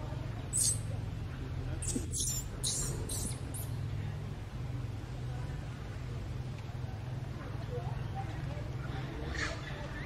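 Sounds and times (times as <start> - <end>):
low background rumble: 0.0 - 10.0.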